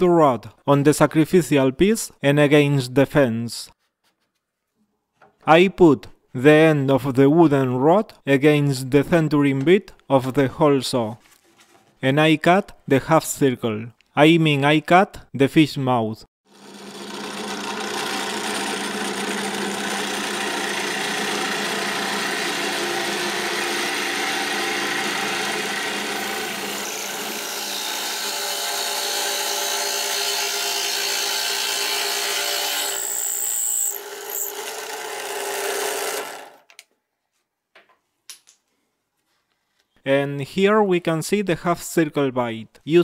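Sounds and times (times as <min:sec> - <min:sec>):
drill press motor hum: 0:16.5 - 0:27.5
hole saw cutting wood: 0:16.5 - 0:36.6.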